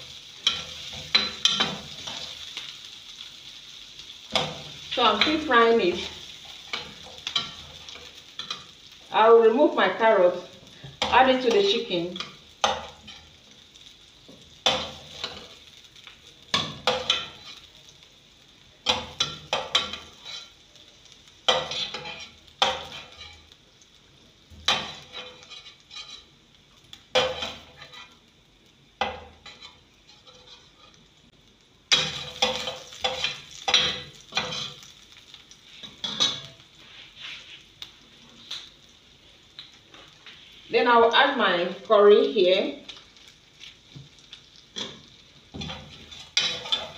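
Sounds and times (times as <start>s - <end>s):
oil sizzling in a pan: 0.0s - 46.9s
metal spoon scraping a pan: 0.4s - 2.4s, 4.3s - 8.8s, 10.9s - 13.4s, 16.5s - 17.7s, 18.8s - 20.6s, 21.5s - 23.5s, 24.7s - 26.3s, 27.2s - 28.2s, 29.0s - 31.1s, 31.9s - 35.0s, 35.8s - 37.6s, 44.8s - 46.9s.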